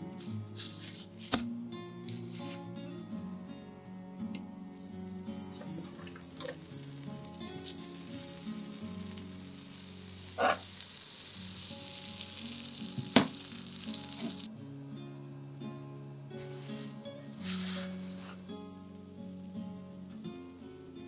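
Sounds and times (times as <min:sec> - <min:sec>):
butter sizzling in a frying pan: 0:04.7 - 0:14.5.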